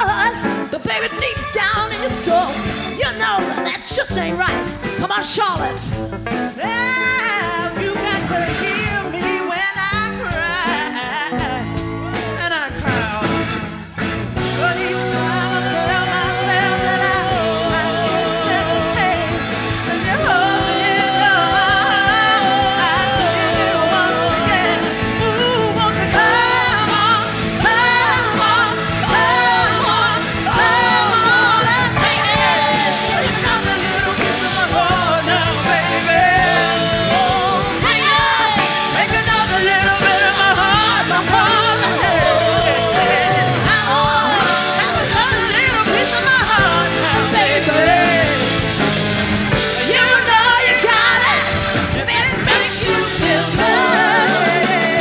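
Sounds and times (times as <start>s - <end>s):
instrumental backing with steady beat: 0.0s - 55.0s
person singing: 14.5s - 48.7s.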